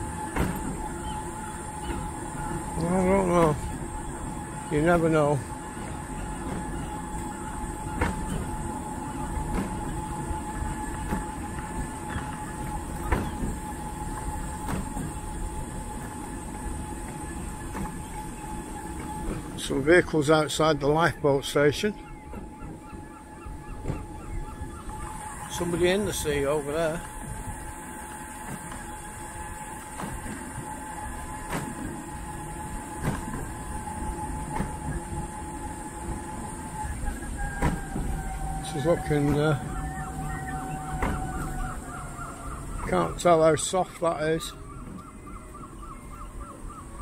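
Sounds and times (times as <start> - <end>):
wheels clacking on bumps: 0.0 - 45.8
faint electric motor whine: 0.0 - 47.0
wheels rumbling over paving: 0.0 - 47.0
wheels knocking over joints: 23.7 - 45.1.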